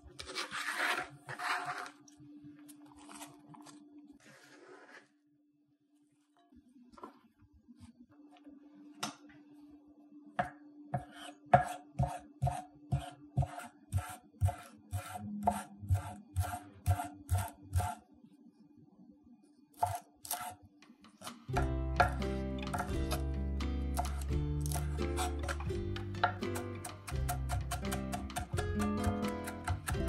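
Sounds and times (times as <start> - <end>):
knife chopping on wooden board: 10.4 - 18.0, 19.8 - 20.6, 21.5 - 23.2, 23.9 - 30.0.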